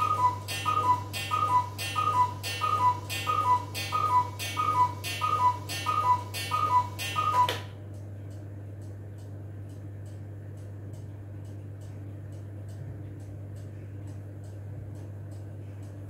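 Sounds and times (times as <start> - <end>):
cuckoo clock calling: 0.0 - 7.7.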